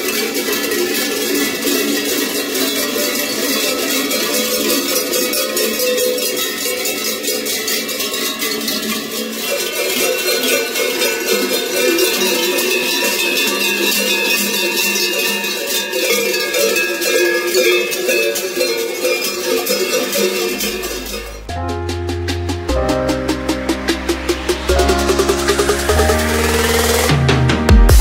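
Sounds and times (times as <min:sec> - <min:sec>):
cowbells jangling: 0:00.0 - 0:21.5.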